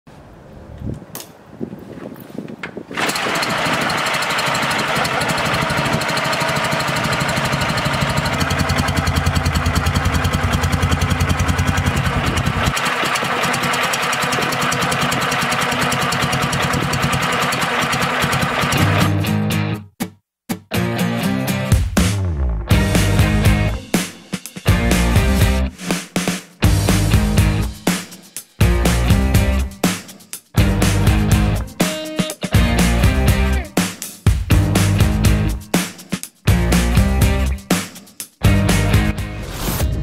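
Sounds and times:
motorcycle engine running: 3.0s - 19.1s.

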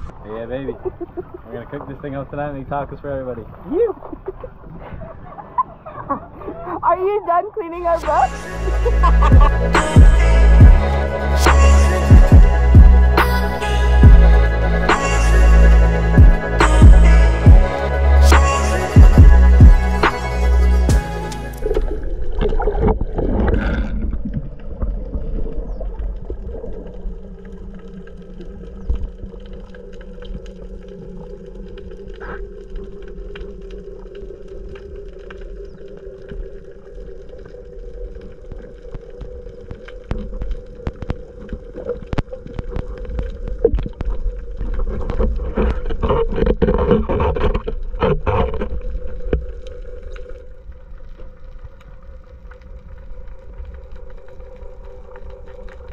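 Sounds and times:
water swishes: 0.0s - 55.9s
water rushing past microphone: 7.8s - 55.9s
boat engine hum underwater: 7.9s - 55.9s
crackling clicks: 21.2s - 55.9s.

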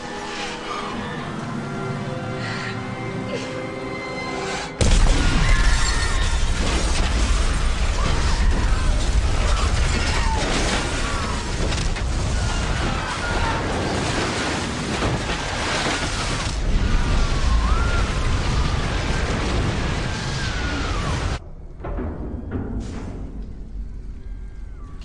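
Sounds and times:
people screaming: 0.0s - 2.7s, 4.8s - 14.7s, 16.0s - 21.4s
crashes of flying debris: 4.8s - 21.4s
explosion deep rumble: 4.8s - 25.0s.

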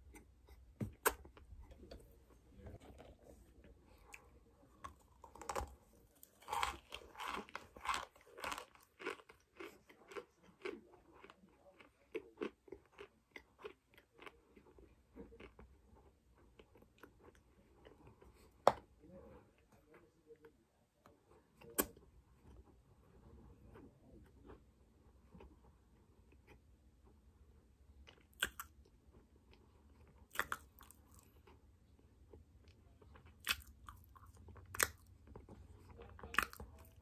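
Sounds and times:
crunchy chewing: 2.7s - 18.7s, 28.0s - 37.0s.

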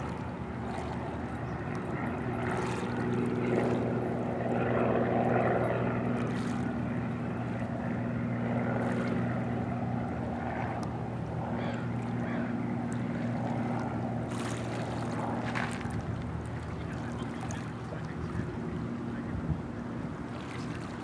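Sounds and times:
distant engine droning: 0.0s - 21.0s
wind and water hiss: 0.0s - 21.0s.

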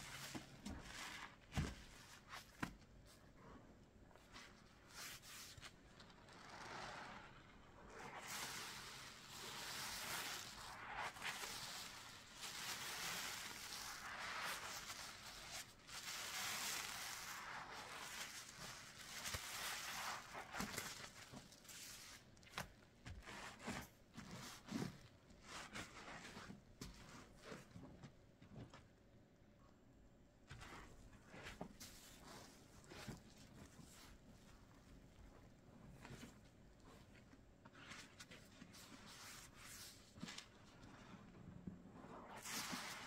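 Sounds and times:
soapy lather squelching by hand: 4.3s - 22.2s, 42.1s - 43.0s.

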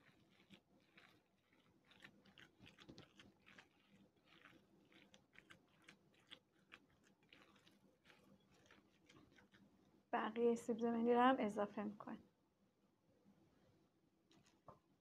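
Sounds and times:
hands kneading raw meat mixture: 0.0s - 10.4s.

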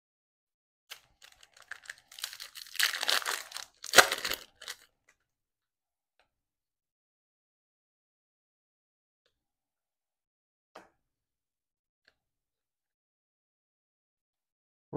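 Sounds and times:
foil wrapper tearing: 0.9s - 4.9s.

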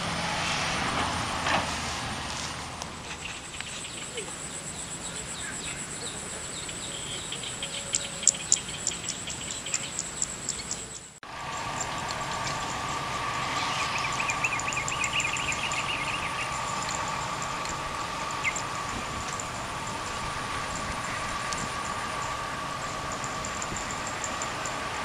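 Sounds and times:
steady hum: 11.2s - 25.0s
warbling bird call: 11.4s - 25.0s.

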